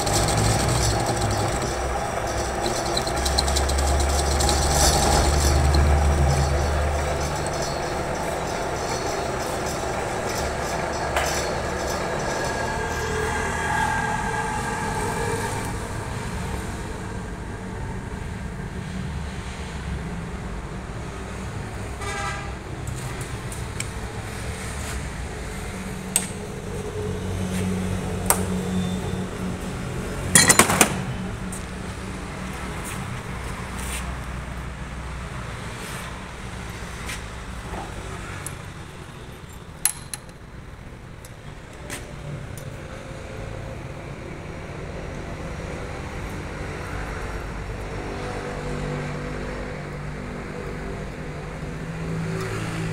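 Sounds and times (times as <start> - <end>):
loud metal clanks: 0.0 - 12.2, 30.3 - 31.2
lathe motor hum: 0.0 - 13.6
metal clicks and knocks: 30.4 - 31.1, 39.8 - 40.4.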